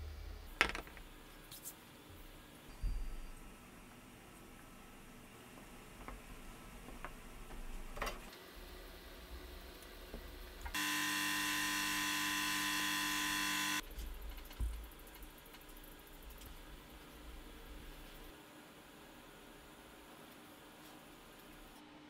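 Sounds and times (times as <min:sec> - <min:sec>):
electric buzz with pitched hum: 0:10.4 - 0:13.8.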